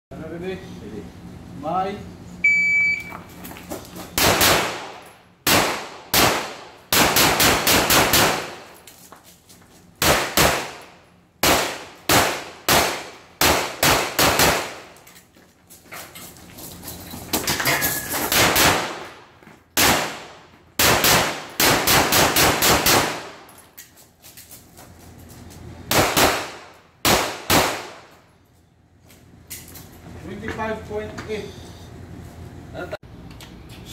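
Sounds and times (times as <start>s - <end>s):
shot timer beep: 2.4s - 3.2s
handgun shots: 4.2s - 8.7s, 10.0s - 10.8s, 11.4s - 14.9s, 19.8s - 23.4s, 25.9s - 28.1s.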